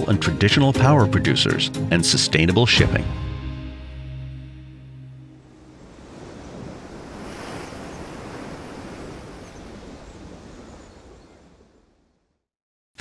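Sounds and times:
ocean waves: 5.1s - 12.2s
wind: 5.2s - 12.5s.

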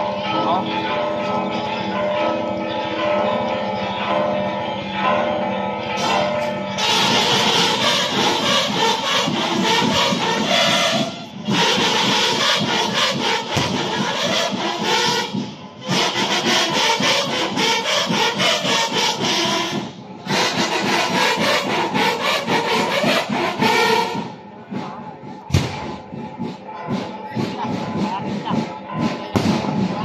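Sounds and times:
loud music with percussive beat: 6.8s - 24.4s.

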